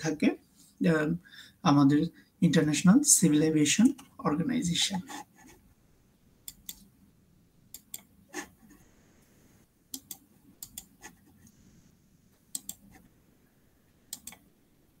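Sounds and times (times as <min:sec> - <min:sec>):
low room hum: 0:00.0 - 0:15.0
computer mouse clicks: 0:06.4 - 0:06.9, 0:07.7 - 0:08.8, 0:09.9 - 0:11.6, 0:12.5 - 0:13.1, 0:14.1 - 0:14.5.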